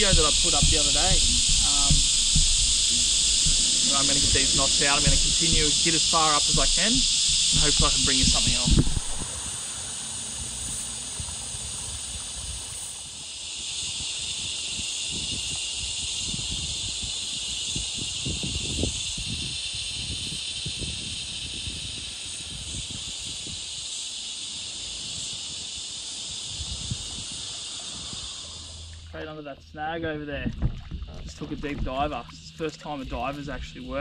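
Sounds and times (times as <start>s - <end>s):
low rustling and knocking: 0.0s - 9.2s, 30.4s - 32.4s
insects buzzing: 0.0s - 34.0s.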